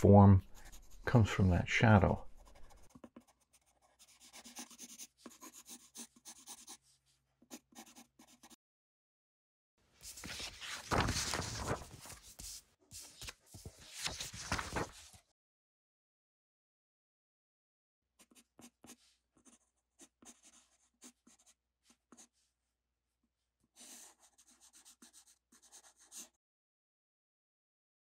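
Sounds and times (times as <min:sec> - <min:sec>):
pencil scratching on paper: 0:00.4 - 0:01.5, 0:02.2 - 0:08.6, 0:18.2 - 0:22.4, 0:23.7 - 0:26.4
paper sliding and rustling: 0:10.0 - 0:15.2.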